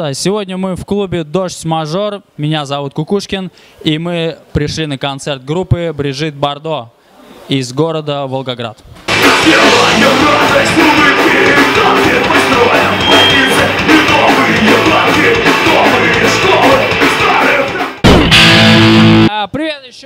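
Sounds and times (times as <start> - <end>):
man singing: 9.1 - 18.0
rock band playing: 9.1 - 19.3
loud steady held tone: 12.6 - 14.7.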